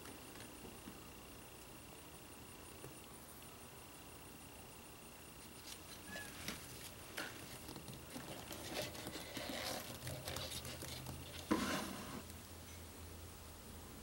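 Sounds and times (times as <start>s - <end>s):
wooden stick scraping a can: 8.1s - 12.2s.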